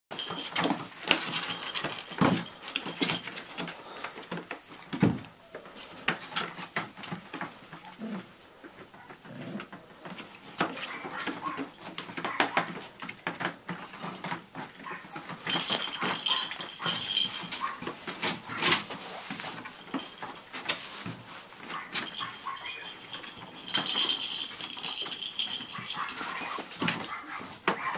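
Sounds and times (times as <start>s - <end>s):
scuffling and knocks: 0.1s - 27.9s
puppies whimpering and yipping: 10.7s - 12.7s, 14.8s - 17.9s, 21.7s - 23.6s.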